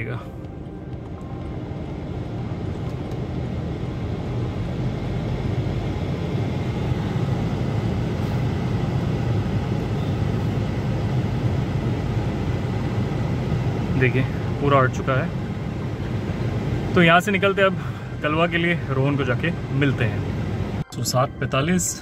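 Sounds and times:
car blower rushing air: 0:01.4 - 0:14.6.

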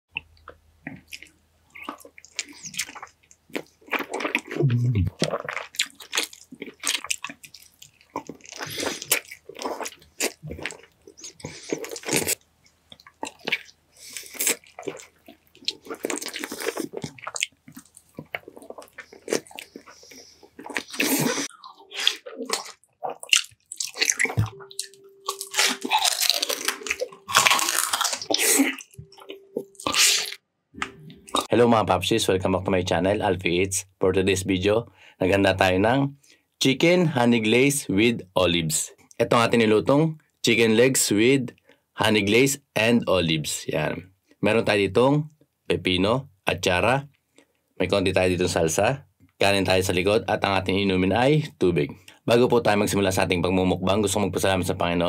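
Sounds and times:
wet smacking chewing: 0:00.2 - 0:31.5.

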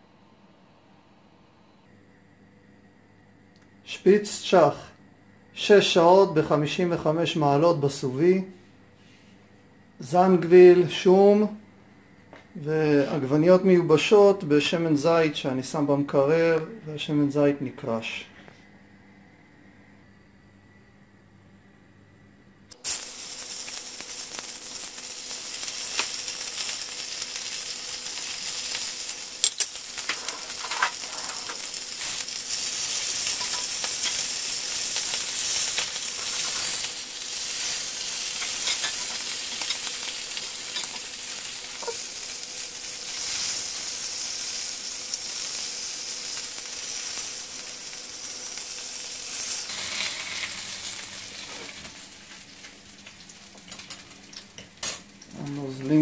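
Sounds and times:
meat sizzling in skillet: 0:22.8 - 0:55.3
cutlery clinking against pan: 0:38.4 - 0:39.8, 0:41.8 - 0:42.0.

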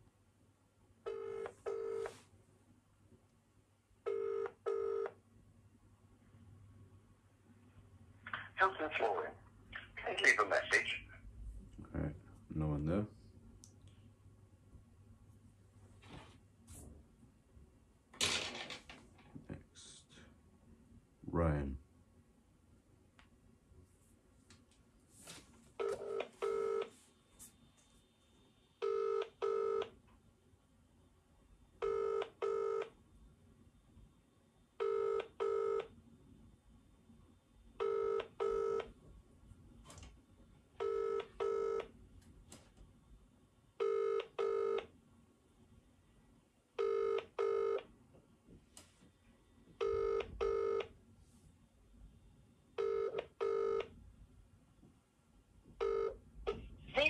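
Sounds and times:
telephone ringback tone: 0:01.1 - 0:02.2, 0:04.1 - 0:05.1, 0:25.8 - 0:26.9, 0:28.8 - 0:29.8, 0:31.8 - 0:32.8, 0:34.8 - 0:35.8, 0:37.8 - 0:38.8, 0:40.8 - 0:41.8, 0:43.8 - 0:44.8, 0:46.8 - 0:47.8, 0:49.8 - 0:50.9, 0:52.8 - 0:53.9, 0:55.8 - 0:56.6.

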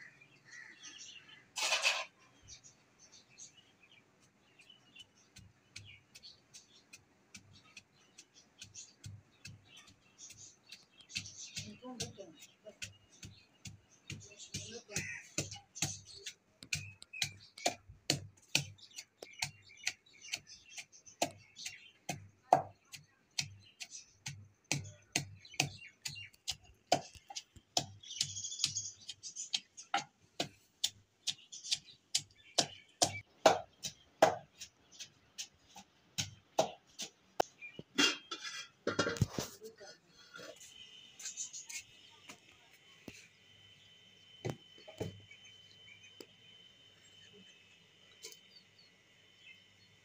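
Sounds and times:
wooden pestle pounding in mortar: 0:08.6 - 0:20.5, 0:21.2 - 0:23.6, 0:24.2 - 0:37.2.

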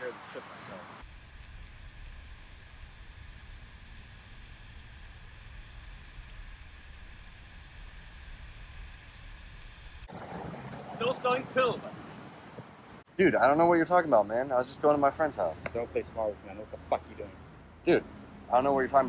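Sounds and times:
low outdoor rumble: 0:01.0 - 0:13.0.

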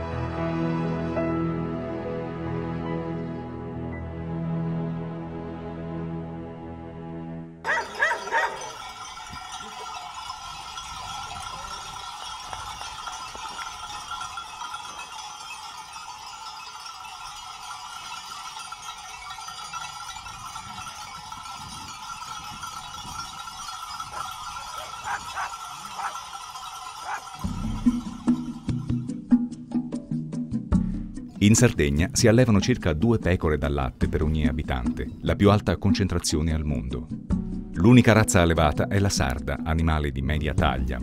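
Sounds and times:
sheep bells jingling and clanking: 0:07.6 - 0:29.2.

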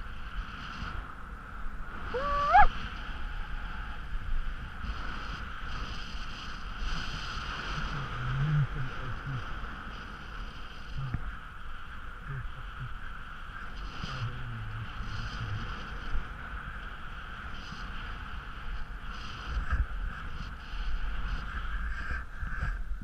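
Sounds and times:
short loud cry: 0:02.2 - 0:02.7
skis scraping over snow: 0:04.6 - 0:11.1.

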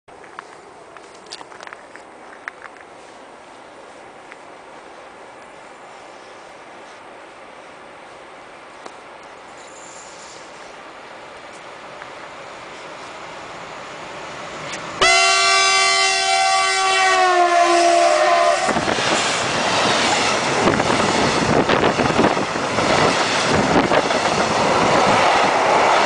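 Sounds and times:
two-tone locomotive horn: 0:15.0 - 0:18.8.

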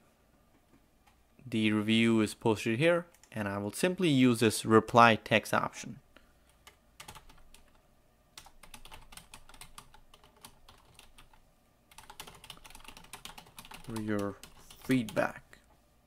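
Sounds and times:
typing on computer keyboard: 0:06.6 - 0:07.8, 0:08.4 - 0:15.2.

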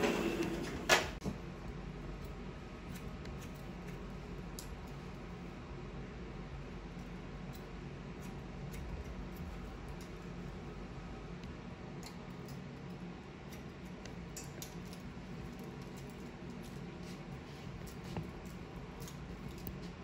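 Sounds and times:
low room hum: 0:00.0 - 0:20.0
shears snipping hair: 0:02.2 - 0:05.2, 0:07.0 - 0:10.5, 0:11.9 - 0:20.0.

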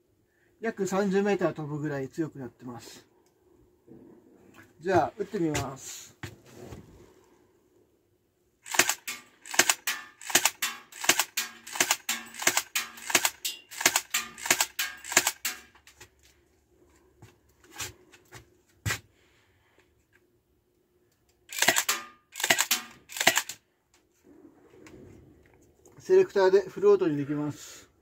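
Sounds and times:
airsoft pistol shots: 0:08.7 - 0:15.6, 0:21.5 - 0:23.6.

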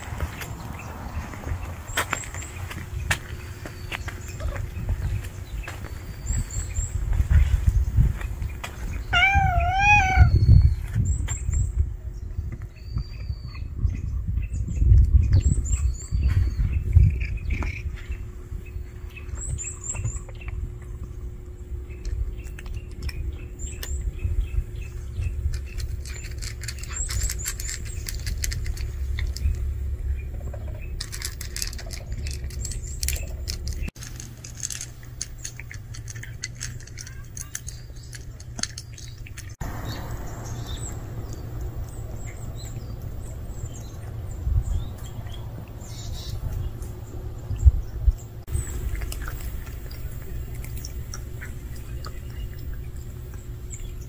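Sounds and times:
birds chirping: 0:00.0 - 0:54.0
steady low rumble: 0:00.0 - 0:54.0
cat crunching dry kibble: 0:20.6 - 0:40.4, 0:48.5 - 0:54.0.

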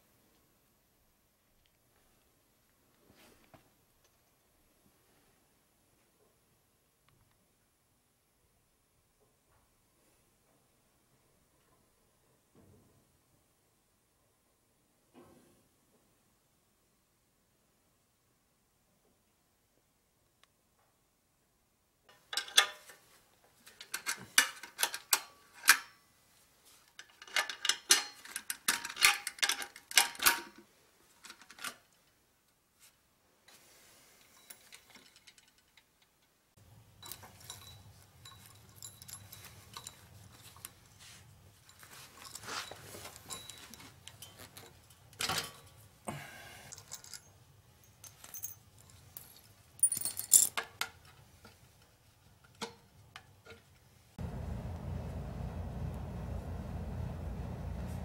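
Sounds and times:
faint low hum: 0:54.2 - 0:58.0.

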